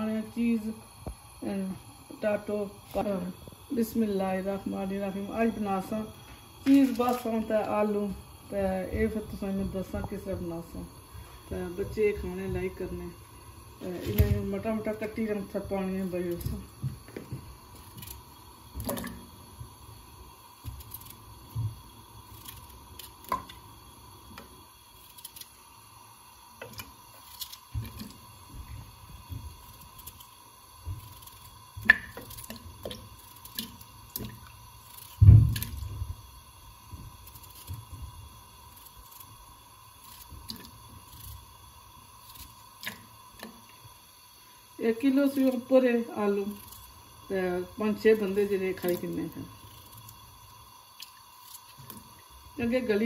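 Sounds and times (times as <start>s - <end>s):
loud thud: 35.2s - 35.6s.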